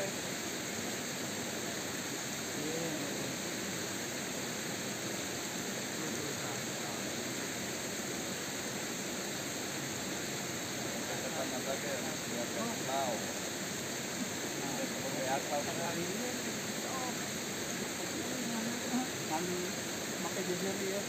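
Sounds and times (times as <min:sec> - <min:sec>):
stream water flowing: 0:00.0 - 0:21.0
faint voices: 0:14.1 - 0:21.0.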